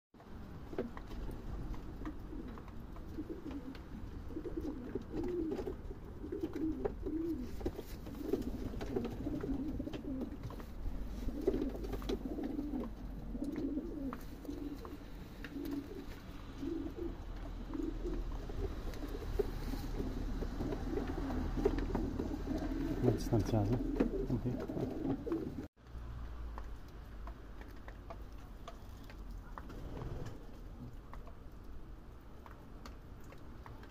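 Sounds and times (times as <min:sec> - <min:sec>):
pigeons cooing: 0:00.5 - 0:25.7.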